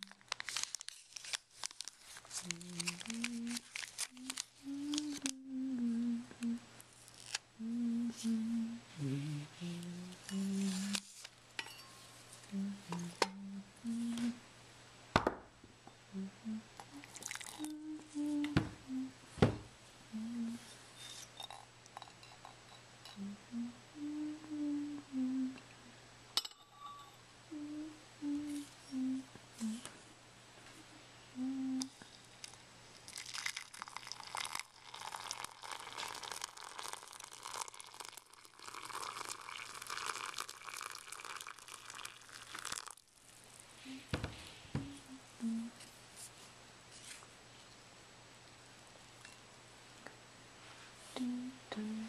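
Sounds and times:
person humming a tune: 2.4 - 6.7, 7.6 - 11.2, 12.5 - 14.4, 16.1 - 20.8, 23.1 - 25.9, 27.5 - 29.9, 31.3 - 32.0, 43.8 - 45.8, 51.1 - 52.0
mug and tea things clinking: 17.1 - 17.7.

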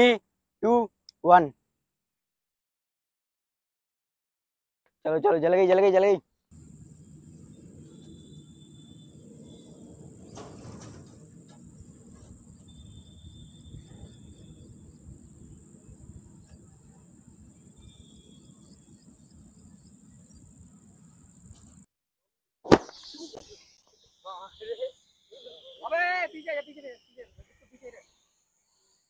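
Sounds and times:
low outdoor noise: 5.9 - 21.9
faint high chirps: 7.0 - 10.6, 11.9 - 21.4, 22.9 - 29.0.

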